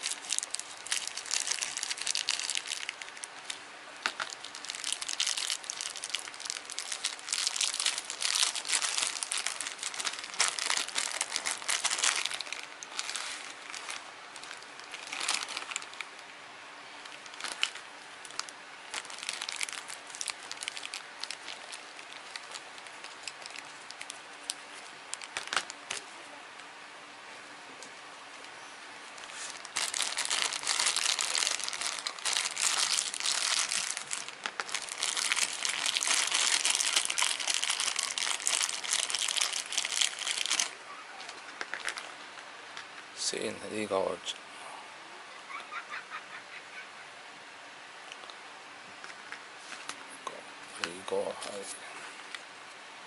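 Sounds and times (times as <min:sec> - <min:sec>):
plastic bag crinkling: 0:00.0 - 0:16.2, 0:17.0 - 0:26.1, 0:29.0 - 0:42.4.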